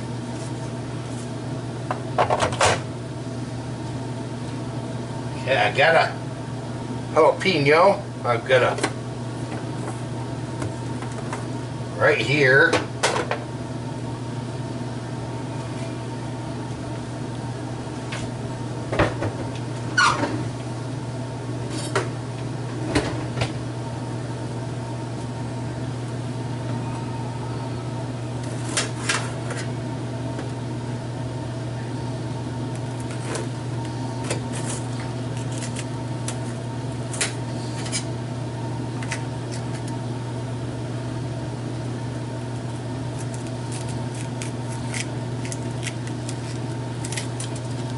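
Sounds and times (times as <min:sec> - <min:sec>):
low machine hum: 0:00.0 - 0:47.9
plastic package crinkling: 0:43.1 - 0:47.9.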